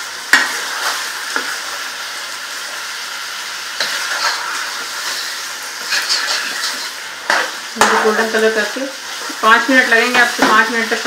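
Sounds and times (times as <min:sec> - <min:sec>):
chicken sizzling in hot oil: 0:00.0 - 0:11.0
spatula scraping pot: 0:03.8 - 0:08.3.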